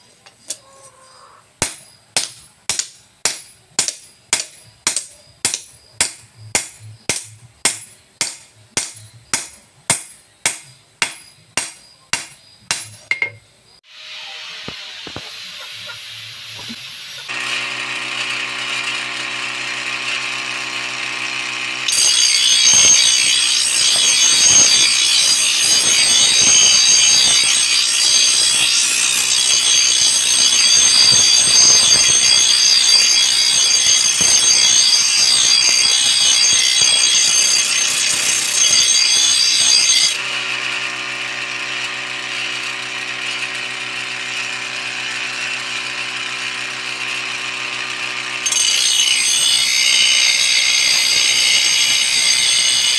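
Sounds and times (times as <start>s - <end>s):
grinding wheel spinning: 14.2s - 52.9s
steel blade grinding on wheel: 15.7s - 52.9s.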